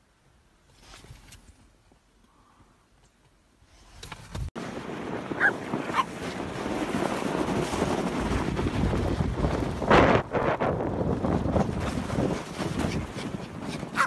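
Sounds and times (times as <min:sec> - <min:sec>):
wind buffeting microphone: 0:04.3 - 0:14.0
small dog yipping: 0:05.4 - 0:06.1.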